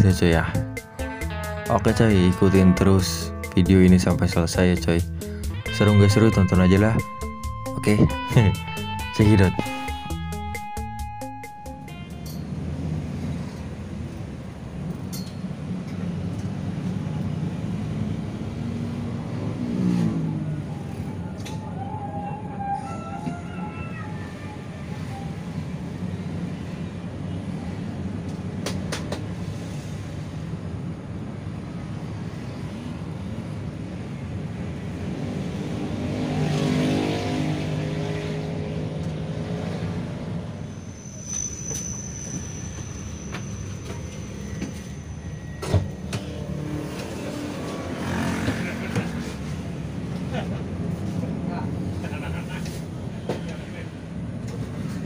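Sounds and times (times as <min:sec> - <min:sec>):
bus engine and road rumble: 0:00.0 - 0:01.0, 0:11.5 - 0:55.0
thin high tone: 0:40.6 - 0:46.1.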